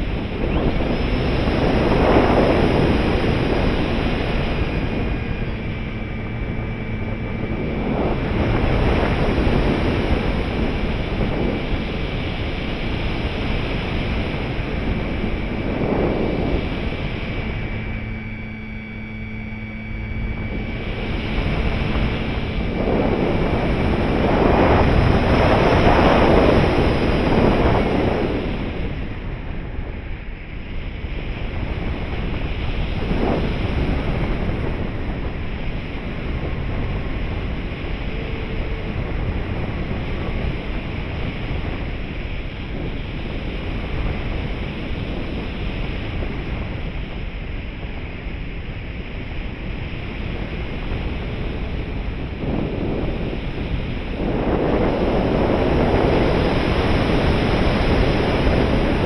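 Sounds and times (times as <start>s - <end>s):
air rushing: 0.0s - 29.6s
electric motor whine: 0.0s - 59.0s.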